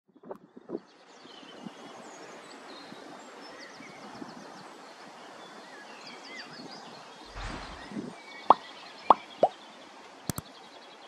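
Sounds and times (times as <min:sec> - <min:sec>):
small birds chirping: 0:00.2 - 0:11.0
low rumble on microphone: 0:07.3 - 0:08.2.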